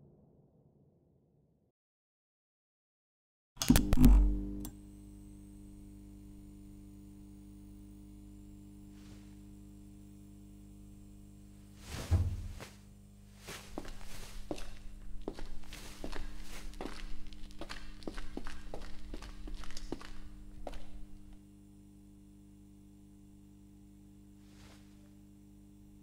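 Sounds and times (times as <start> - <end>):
fluorescent lights switching on clunk: 3.6 - 4.8
fluorescent lights humming: 3.6 - 26.0
dull thump: 11.9 - 12.6.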